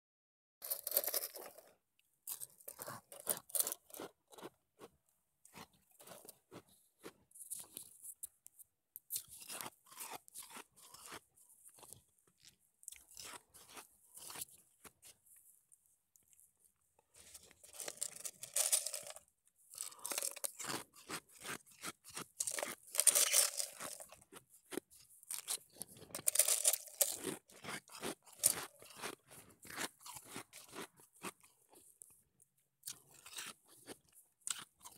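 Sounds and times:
ice cubes crunching: 0.6s - 4.5s, 12.9s - 14.4s, 17.3s - 31.5s, 32.9s - 34.9s.

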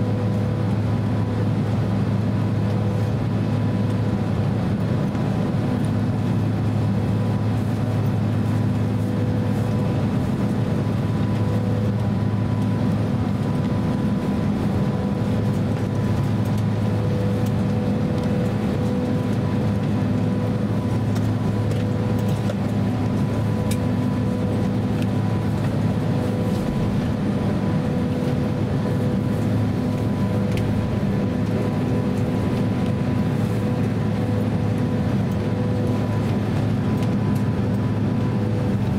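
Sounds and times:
aircraft cabin rumble: 0.0s - 38.9s
engine whine: 0.0s - 38.9s.

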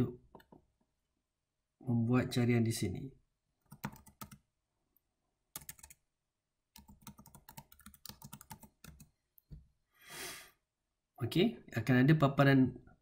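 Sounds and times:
faint keyboard typing: 3.6s - 4.5s, 5.5s - 6.0s, 6.7s - 9.1s.

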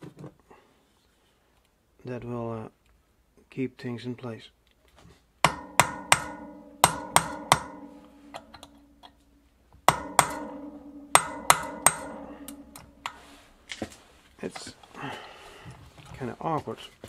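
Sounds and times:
hammer striking metal drift: 5.4s - 13.7s.

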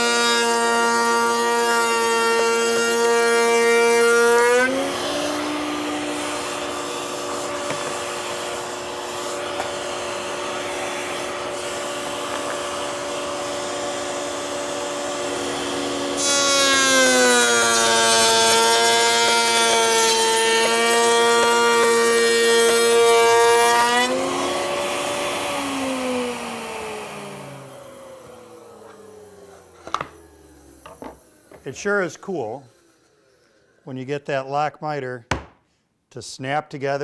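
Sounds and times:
router whining: 0.0s - 33.7s.

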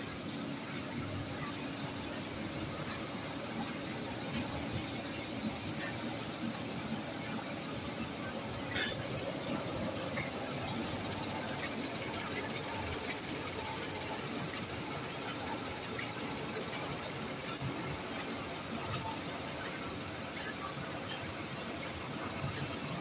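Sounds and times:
machine hum and high whine: 0.0s - 23.0s.

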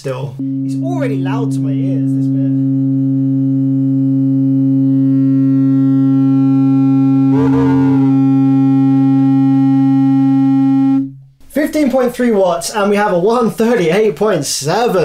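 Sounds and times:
sine test tone: 0.4s - 11.2s.

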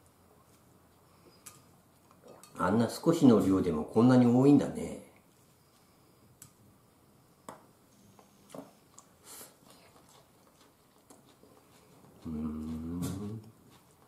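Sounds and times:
man humming: 12.2s - 13.5s.

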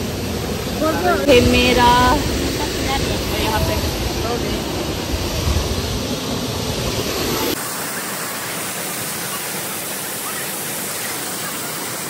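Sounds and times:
waterfall rushing: 0.0s - 12.0s
deep rumble: 0.3s - 7.6s.

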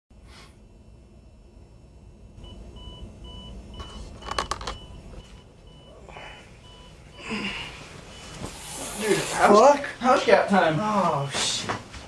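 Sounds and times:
alarm clock beeping: 2.4s - 6.0s, 6.6s - 7.3s.

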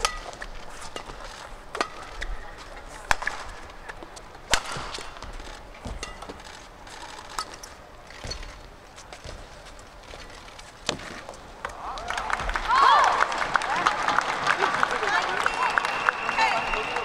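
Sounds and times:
rackets striking shuttlecock: 0.0s - 9.2s
shoe squeaks: 0.0s - 11.4s, 15.1s - 17.0s
crowd noise: 0.0s - 17.0s.

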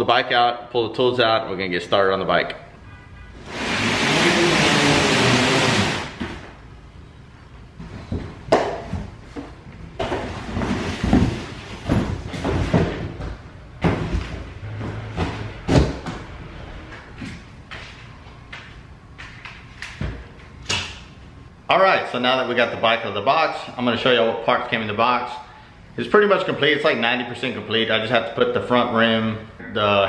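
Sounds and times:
cardboard box scraping on floor: 3.4s - 6.4s
knocks and thumps: 7.8s - 16.3s.

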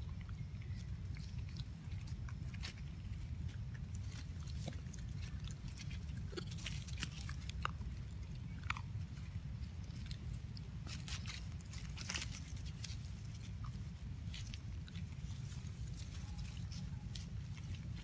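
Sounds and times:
monkey chewing food: 0.0s - 18.0s.

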